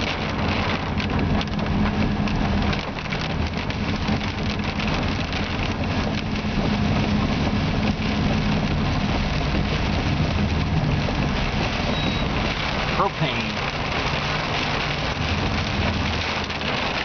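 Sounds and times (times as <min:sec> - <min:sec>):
rain ticking on windshield: 0:00.0 - 0:17.0
road noise: 0:00.0 - 0:17.0
vehicle engine cruising: 0:00.0 - 0:17.0.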